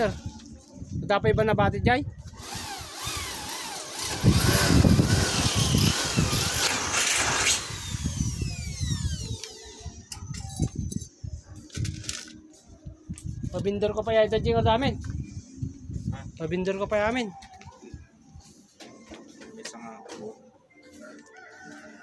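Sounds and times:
motor whining: 2.4 - 10.0.

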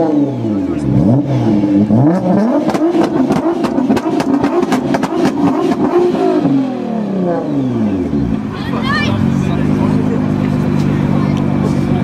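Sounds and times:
car engine revving: 0.0 - 12.0
exhaust pops and crackles: 2.4 - 6.0, 10.3 - 12.0.

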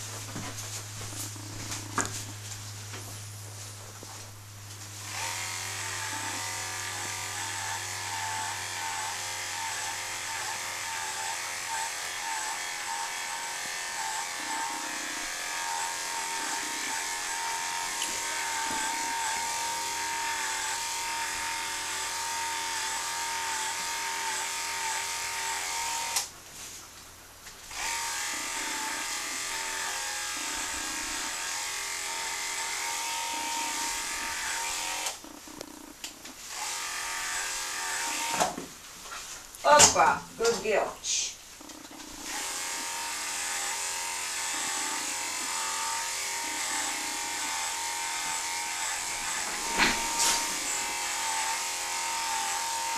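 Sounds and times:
electric clippers whining: 4.8 - 26.3, 27.7 - 38.6, 41.6 - 52.9.

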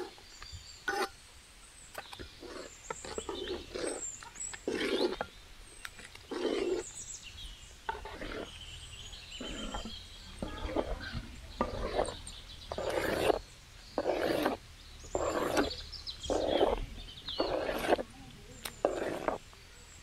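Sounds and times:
ladles stirring in a metal pot: 2.1 - 19.4.

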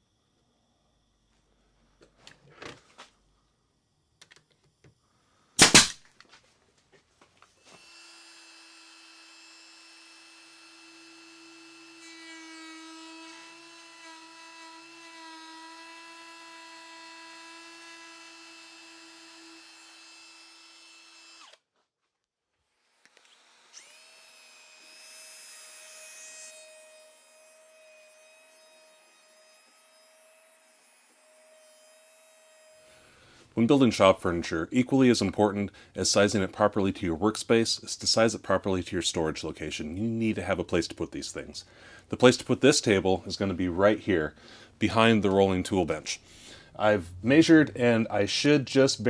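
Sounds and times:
router whining while cutting: 7.6 - 21.6, 22.7 - 32.9.

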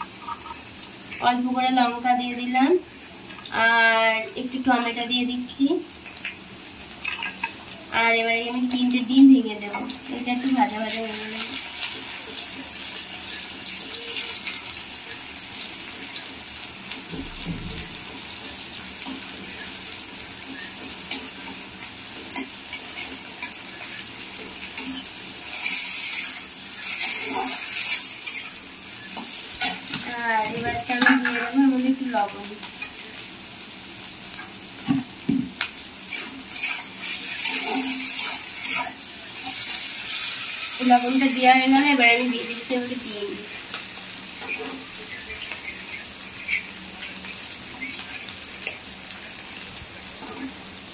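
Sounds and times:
vegetables sizzling: 0.0 - 50.9
metal spatula scraping pan: 24.8 - 29.8, 36.1 - 40.4.

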